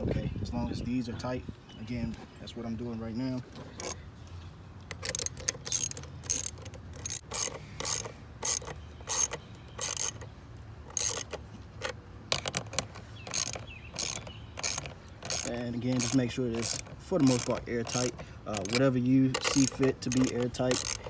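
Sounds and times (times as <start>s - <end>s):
ratchet clicking: 4.9s - 10.3s, 10.9s - 21.0s.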